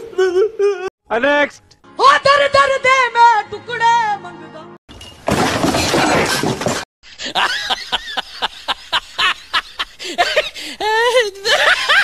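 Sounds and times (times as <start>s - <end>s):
rapid laughter: 7.2s - 12.0s.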